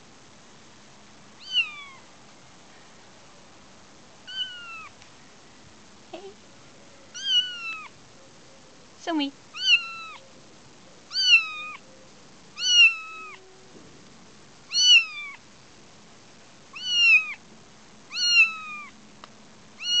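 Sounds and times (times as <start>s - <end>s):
kitten meowing: 1.4s - 2.0s, 4.3s - 4.9s, 7.1s - 7.9s, 9.5s - 10.2s, 11.1s - 11.8s, 12.6s - 13.4s, 14.7s - 15.4s, 16.7s - 17.4s, 18.1s - 19.0s, 19.8s - 20.0s.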